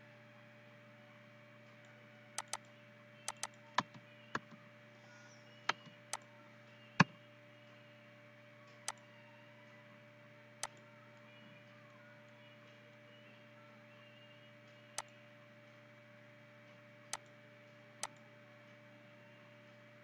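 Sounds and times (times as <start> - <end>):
steady low hum: 0.0 - 20.0
computer mouse clicking: 2.4 - 2.7, 3.3 - 4.6, 8.8 - 9.0, 18.0 - 18.2.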